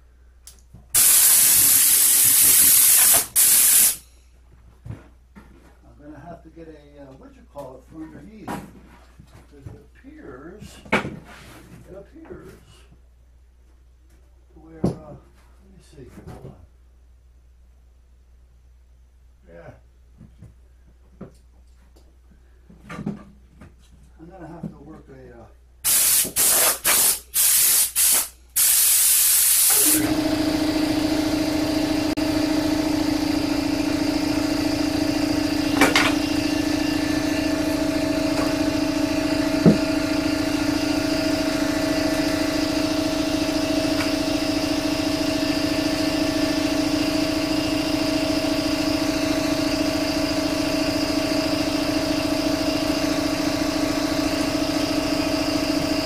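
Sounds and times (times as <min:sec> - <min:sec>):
compressed air blasts: 0:01.0 - 0:04.0, 0:25.9 - 0:30.2
machine humming: 0:29.5 - 0:56.0.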